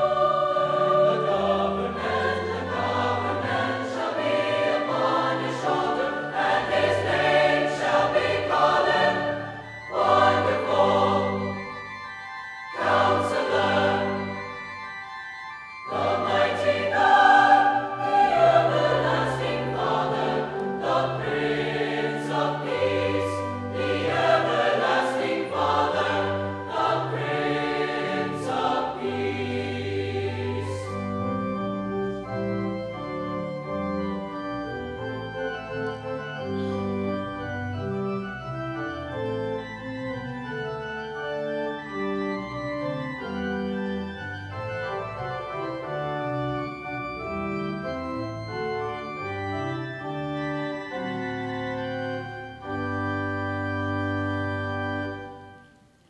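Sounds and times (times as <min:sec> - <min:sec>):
choir singing: 0:00.0 - 0:12.0, 0:12.7 - 0:14.8, 0:15.9 - 0:32.2
organ playing: 0:00.0 - 0:55.9.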